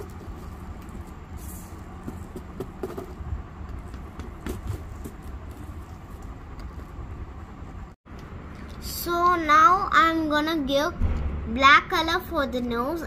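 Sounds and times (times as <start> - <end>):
steady low rumble: 0.0 - 10.3.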